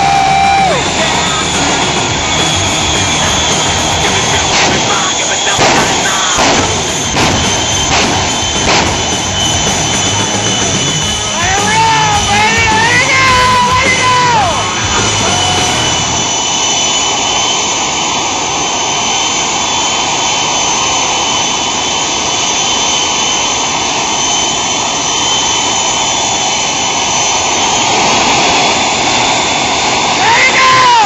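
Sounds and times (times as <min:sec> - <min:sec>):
music: 0:00.0 - 0:04.5, 0:08.8 - 0:16.3
jet engine roar and whine: 0:00.0 - 0:31.0.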